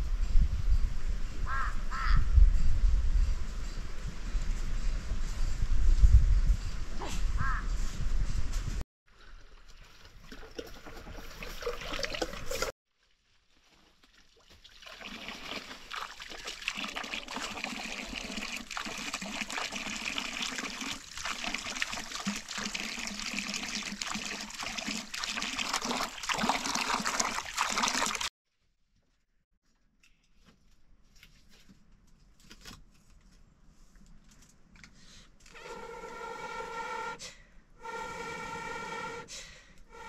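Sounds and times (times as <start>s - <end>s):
water pouring into clay pot: 9.4s - 12.7s, 14.0s - 28.3s
water splashing into metal basin: 14.0s - 28.3s.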